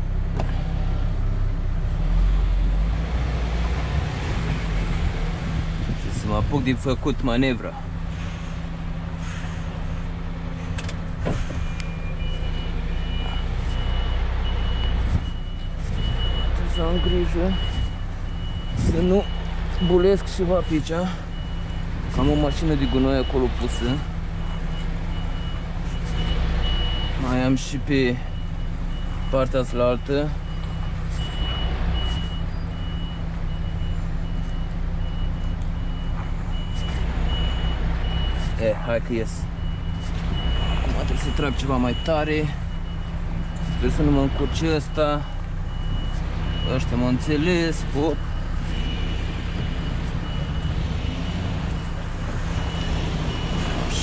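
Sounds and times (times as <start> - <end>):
truck diesel engine idling: 4.2 - 54.0
reversing alarm beeping: 11.4 - 54.0.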